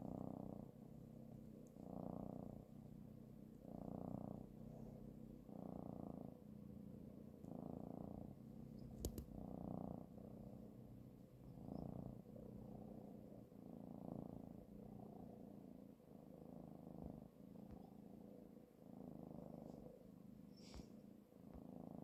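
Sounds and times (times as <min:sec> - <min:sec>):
kitten purring: 0:00.0 - 0:22.0
sharp click: 0:09.0 - 0:09.3.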